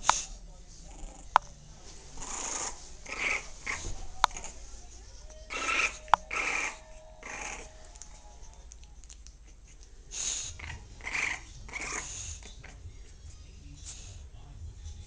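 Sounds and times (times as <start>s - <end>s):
dog snuffling through nose: 0.0s - 1.3s, 2.2s - 4.6s, 5.5s - 7.7s, 9.4s - 12.8s.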